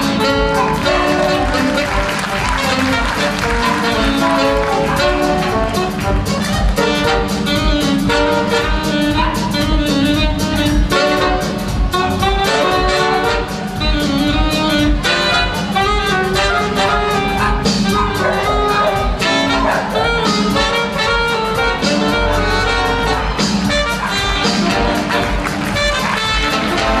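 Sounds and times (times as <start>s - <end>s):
jazzy brass band music: 0.0s - 27.0s.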